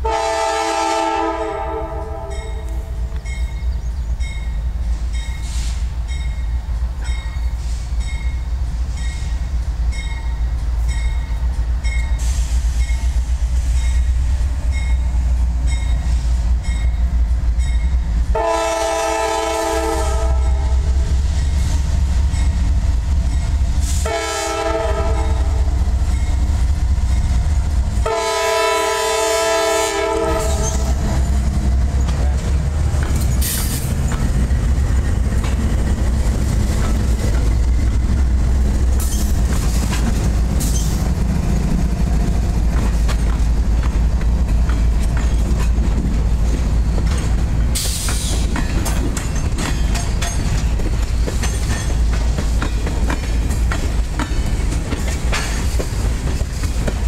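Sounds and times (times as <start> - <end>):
locomotive air horn blasts: 0.0 - 2.9, 18.3 - 20.8, 23.9 - 25.7, 28.0 - 31.0.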